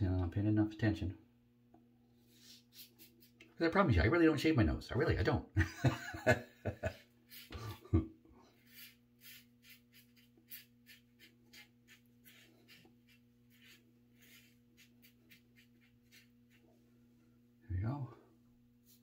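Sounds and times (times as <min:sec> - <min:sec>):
razor scraping stubble: 0:07.2 - 0:07.9, 0:08.6 - 0:16.8.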